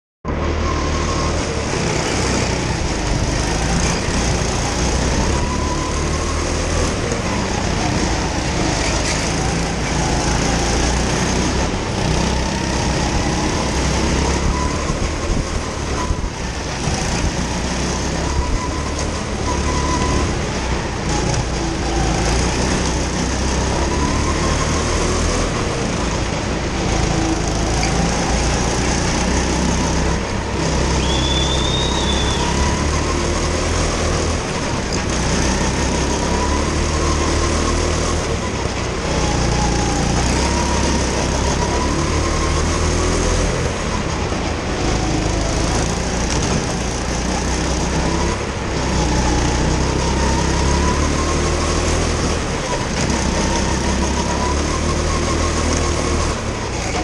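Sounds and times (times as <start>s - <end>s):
go-kart engine running hard: 0.3s - 57.0s
brief high squeal: 30.9s - 32.7s.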